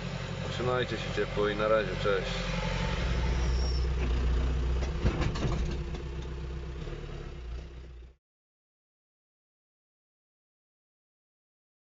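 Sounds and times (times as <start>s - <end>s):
tractor engine running: 0.0s - 8.2s.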